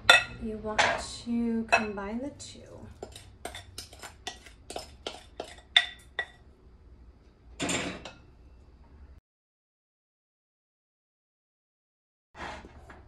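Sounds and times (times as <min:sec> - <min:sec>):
batter scraping: 0:03.0 - 0:05.7.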